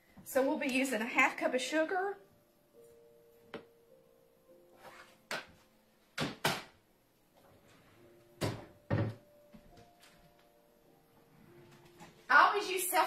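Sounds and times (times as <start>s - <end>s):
cabinet door knocks and thumps: 8.4s - 9.2s.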